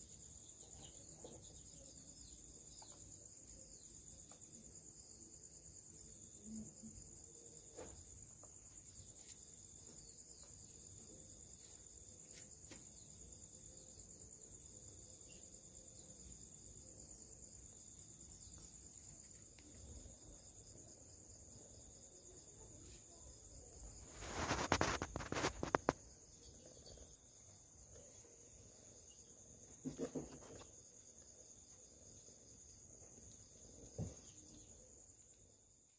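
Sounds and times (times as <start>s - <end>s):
crickets chirping: 0.0s - 35.9s
rustling noise: 23.8s - 26.2s.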